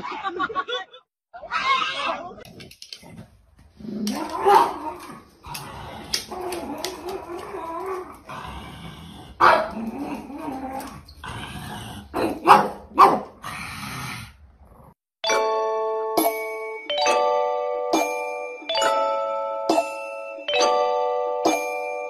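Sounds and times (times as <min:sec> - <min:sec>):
dog barking: 0:04.4 - 0:04.8, 0:09.4 - 0:09.8, 0:12.2 - 0:13.4
bright chiming tune: 0:15.2 - 0:22.0.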